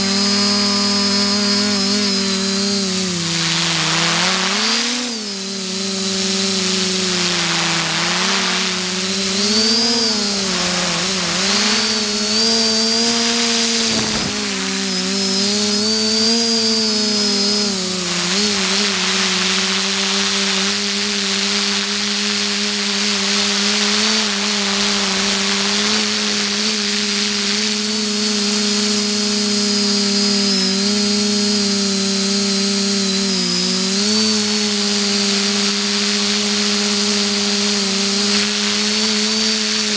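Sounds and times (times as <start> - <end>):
thin high whine: 0.0 - 30.9
drone propellers buzzing: 0.0 - 39.9.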